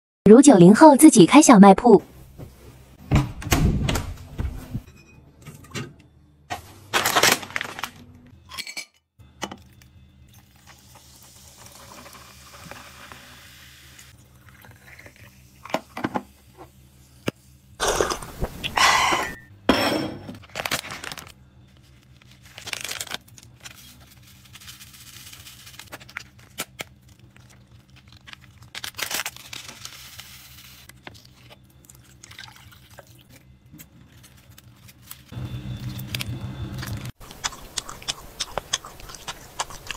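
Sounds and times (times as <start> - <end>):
glass and dishes clinking: 4.8 - 6.0, 19.7 - 20.4
packaging rustling: 7.0 - 8.0, 20.4 - 31.4.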